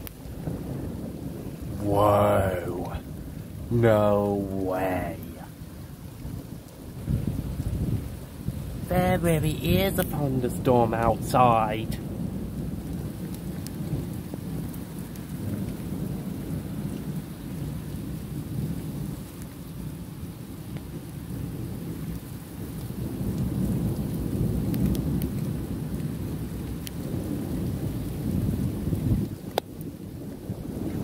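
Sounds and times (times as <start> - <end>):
rain: 0.0 - 31.0
thunder rumbling: 0.1 - 14.8.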